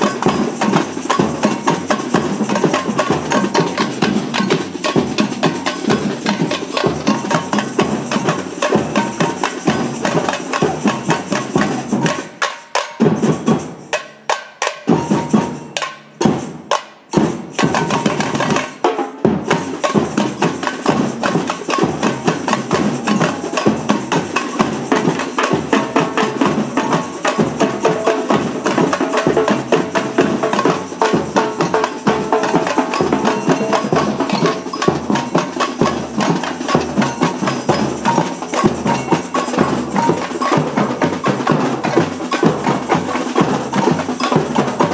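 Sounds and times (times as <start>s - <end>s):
samba percussion band playing: 0.0s - 44.9s
tamborims struck with sticks: 30.3s - 44.9s.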